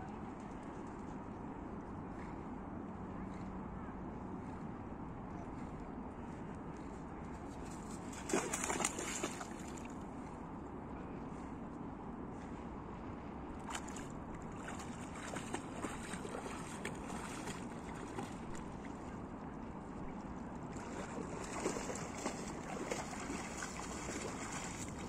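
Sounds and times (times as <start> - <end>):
wind rumbling on microphone: 0.0 - 25.0
water splashing and lapping: 7.7 - 10.0, 13.6 - 19.8, 20.4 - 25.0.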